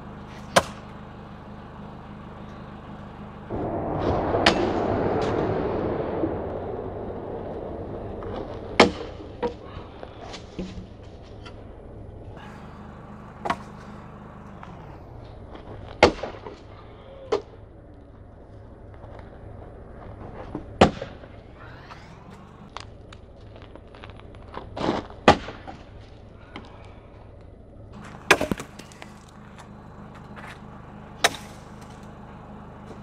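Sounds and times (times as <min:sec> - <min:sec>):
axe chopping wood: 0:00.4 - 0:00.9, 0:28.0 - 0:29.3, 0:31.2 - 0:31.6.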